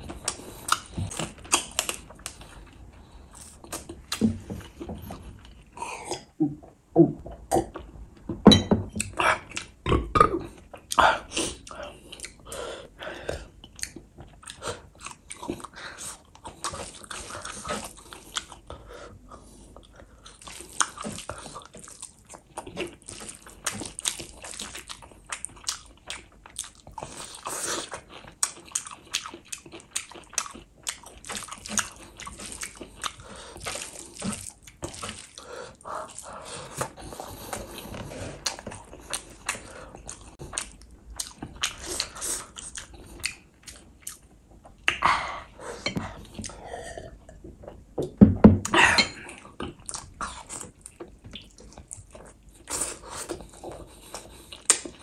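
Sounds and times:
wet chewing: 0:00.0 - 0:06.3, 0:20.2 - 0:45.1.

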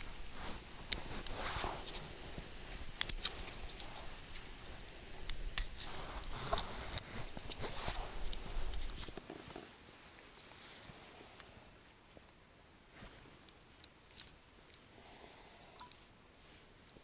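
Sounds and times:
dry skins crackling: 0:00.0 - 0:09.6.

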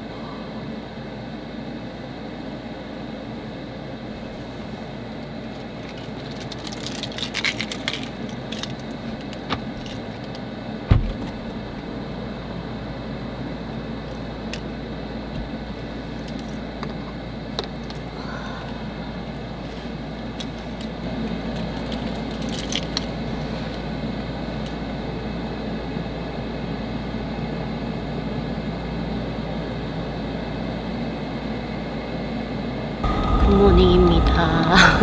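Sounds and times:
steady low hum: 0:00.0 - 0:35.0
heavy thump: 0:10.9 - 0:11.6.

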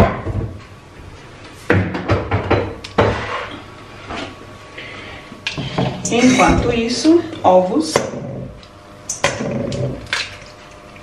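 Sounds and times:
kitchen knocks and clatters: 0:00.0 - 0:00.6, 0:01.7 - 0:03.5, 0:05.5 - 0:06.8.

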